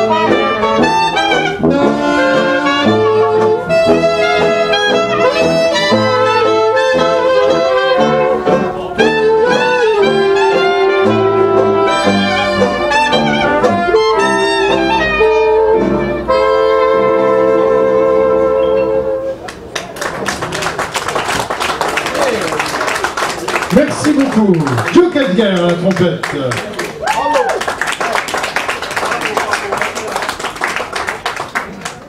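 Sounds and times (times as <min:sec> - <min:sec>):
sousaphone bass notes: 0:00.0 - 0:19.4
trumpet and cornet: 0:00.0 - 0:19.5
clarinet and saxophone: 0:00.0 - 0:19.6.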